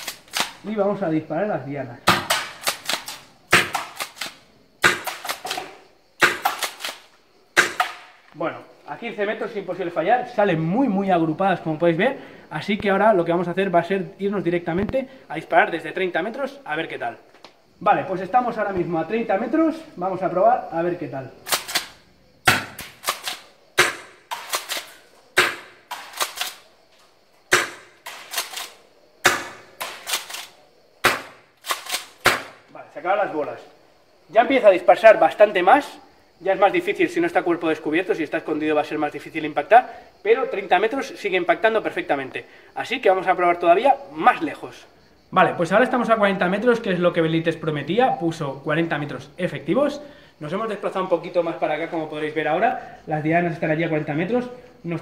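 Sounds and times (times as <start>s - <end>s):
airsoft shotgun cracks: 0.0s - 0.6s, 2.1s - 8.1s, 27.5s - 32.6s
airsoft shotgun shots: 2.1s - 7.0s, 7.6s - 8.1s, 22.5s - 26.5s, 31.0s - 32.6s
rattle of clicks: 25.9s - 26.6s, 28.0s - 28.8s, 29.8s - 30.6s.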